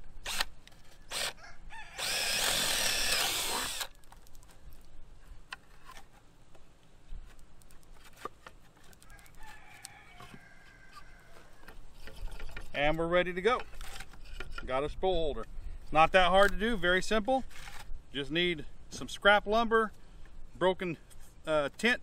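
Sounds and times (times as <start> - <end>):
cordless drill boring into wood: 0.2 - 0.5, 1.1 - 1.4, 2.0 - 3.9.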